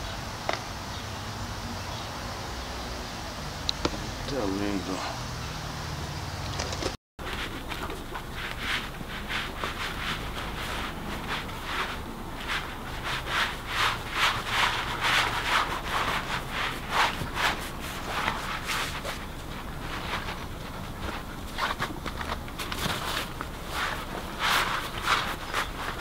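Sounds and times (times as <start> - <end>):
cylinder scraping over paper: 7.2 - 26.0.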